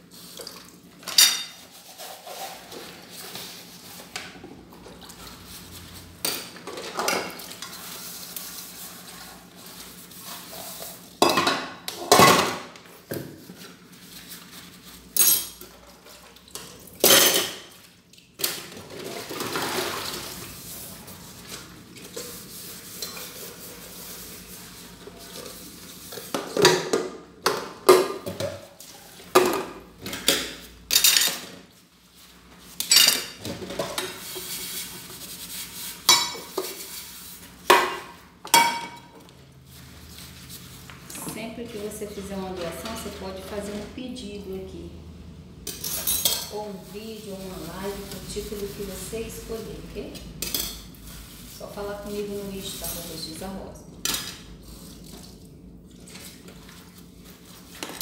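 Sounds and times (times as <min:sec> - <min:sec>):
dishes and cutlery clinking: 0:01.0 - 0:02.9, 0:15.1 - 0:15.7, 0:17.0 - 0:17.7, 0:29.3 - 0:31.6, 0:32.8 - 0:34.5, 0:45.6 - 0:46.6, 0:50.4 - 0:51.0.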